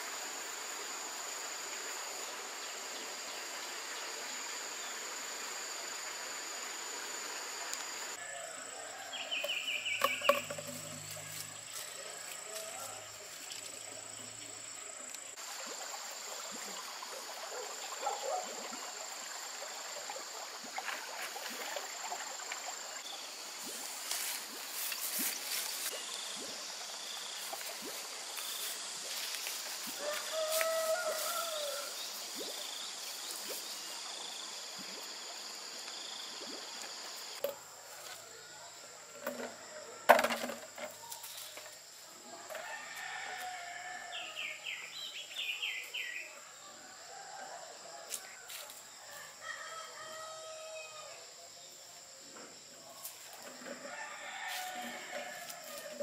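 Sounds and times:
high insect whine: 0.0 - 46.2, 48.1 - 56.0
roosters crowing: 30.0 - 32.0, 42.6 - 44.4, 53.8 - 56.0.

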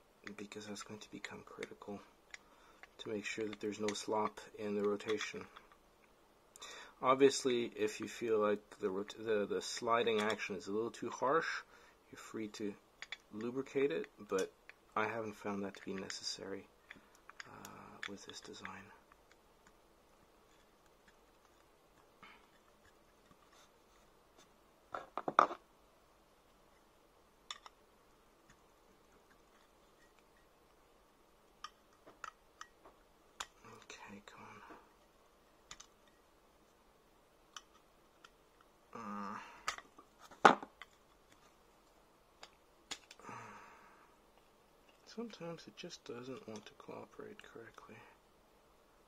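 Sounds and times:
pliers clicking on metal tubing: 27.5 - 27.8.

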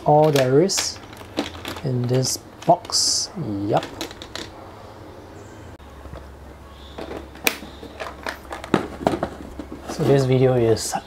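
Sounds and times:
plastic pen cases clicking: 0.2 - 3.1, 3.8 - 4.5, 7.0 - 9.8.

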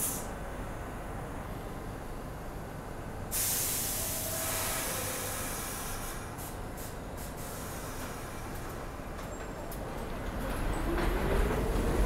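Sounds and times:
air brake hiss: 0.0 - 0.3, 3.3 - 8.7
short puffs of air: 3.3 - 8.3.

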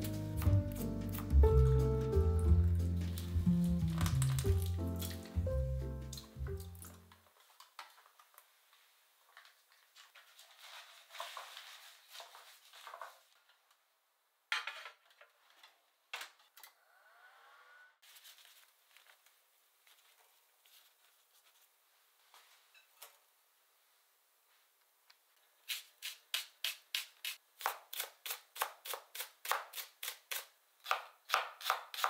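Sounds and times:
paper towel rubbing mesh strainer: 10.0 - 13.3.

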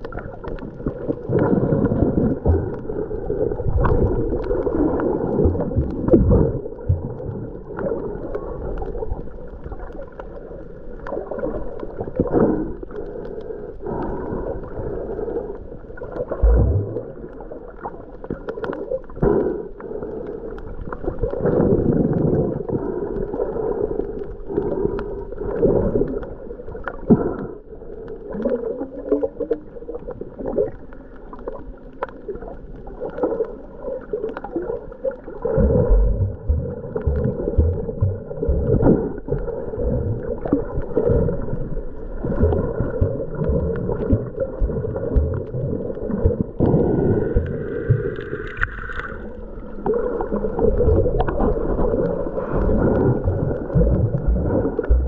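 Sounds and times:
muffled water gurgling underwater: 0.0 - 55.0.

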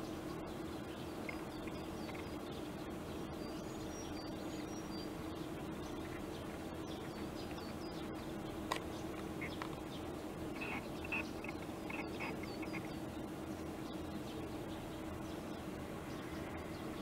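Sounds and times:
low background hum: 0.0 - 17.0
small birds chirping: 0.0 - 17.0.

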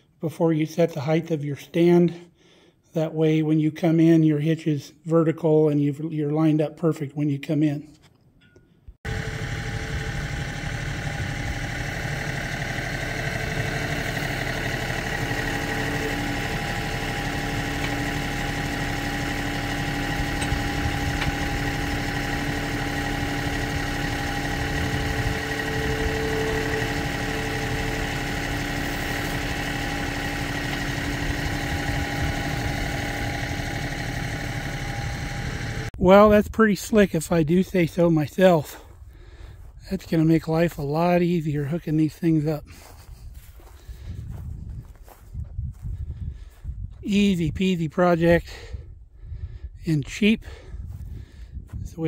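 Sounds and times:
tractor engine idling: 9.1 - 36.0.

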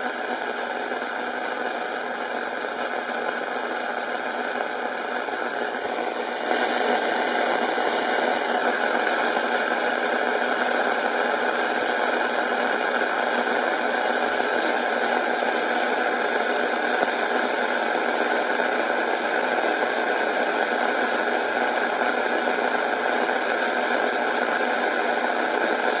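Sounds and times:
steady static hiss: 0.0 - 26.0.

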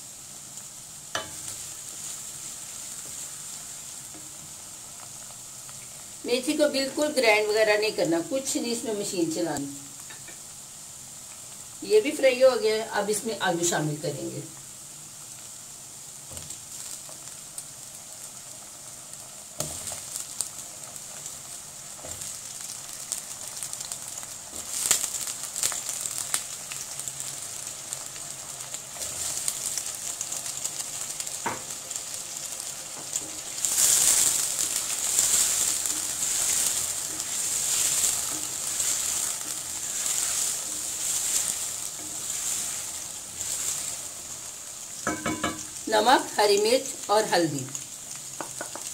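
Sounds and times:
potatoes sizzling in hot oil: 0.0 - 48.9
wooden spoon stirring: 32.9 - 45.7.

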